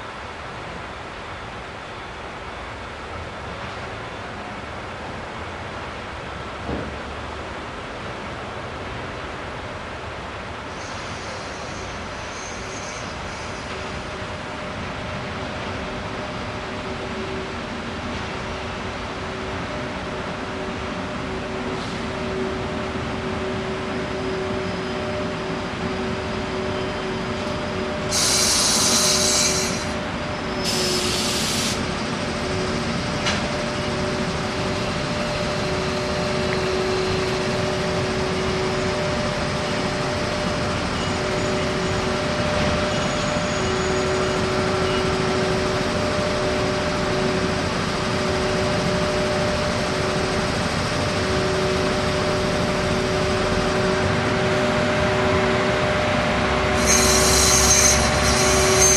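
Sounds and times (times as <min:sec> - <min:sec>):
electric locomotive hum: 0:00.0 - 0:58.9
loud hisses: 0:28.1 - 0:30.0, 0:30.6 - 0:32.0, 0:56.8 - 0:58.9.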